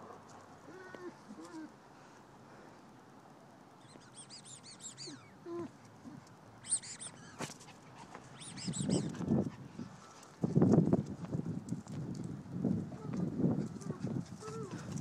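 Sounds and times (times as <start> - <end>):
bird chirping: 3.8 - 5.4, 6.6 - 7.4, 8.3 - 9.1.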